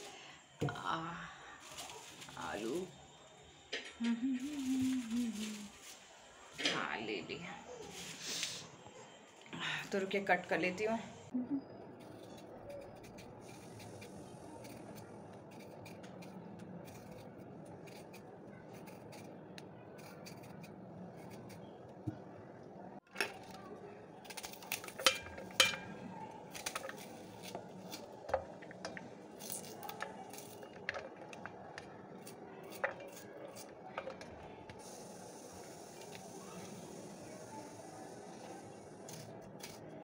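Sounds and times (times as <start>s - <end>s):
knife cutting onion: 12.0s - 21.7s, 24.2s - 35.1s, 39.0s - 40.0s.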